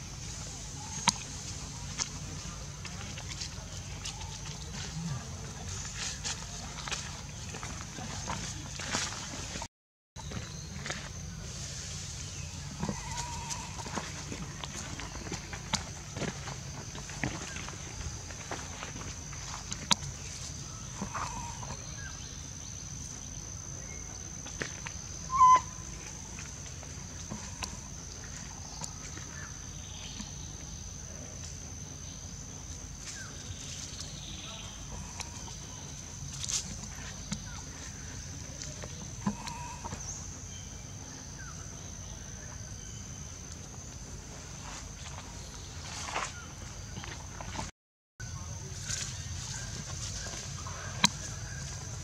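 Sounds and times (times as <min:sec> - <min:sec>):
insects buzzing: 0:00.0 - 0:52.0
faint animal call: 0:12.7 - 0:14.6, 0:20.8 - 0:22.2, 0:25.2 - 0:26.3, 0:34.3 - 0:36.0, 0:37.5 - 0:40.1.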